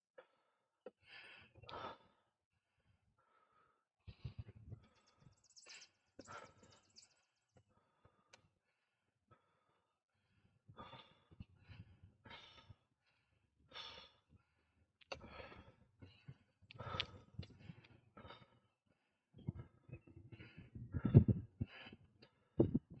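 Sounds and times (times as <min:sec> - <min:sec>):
cyclist huffing and puffing: 0:20.4 - 0:23.0.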